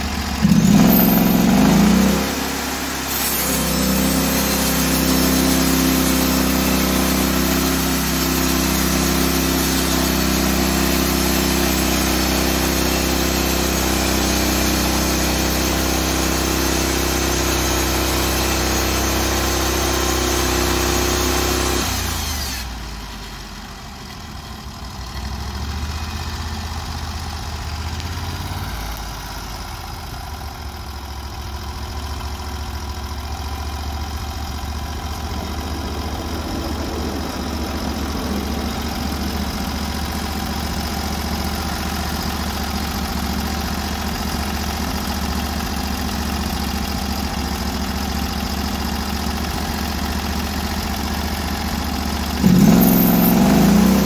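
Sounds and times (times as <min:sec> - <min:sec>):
engine running: 0:00.0 - 0:54.0
band saw cutting log: 0:00.4 - 0:22.7, 0:52.4 - 0:54.0.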